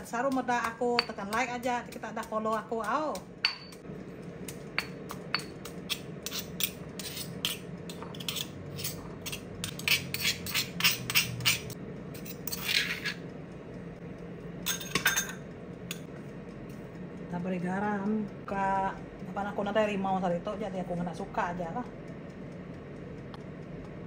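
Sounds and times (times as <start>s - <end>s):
pestle pounding in stone mortar: 0.1s - 3.8s
spoon clinks: 3.4s - 3.8s
metal spoon scraping mortar: 5.3s - 13.2s.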